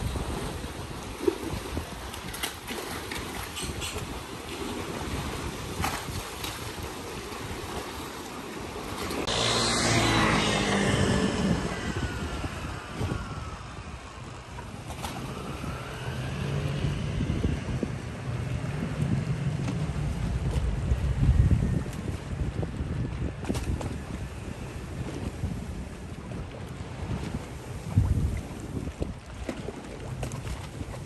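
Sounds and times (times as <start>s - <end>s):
wind buffeting microphone: 0.0s - 31.0s
engine passing by: 9.0s - 22.7s
low rumble: 9.2s - 26.2s.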